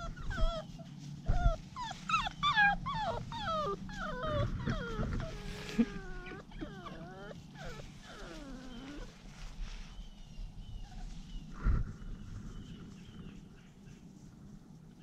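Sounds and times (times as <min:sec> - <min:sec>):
puppy whining: 0:00.0 - 0:11.5.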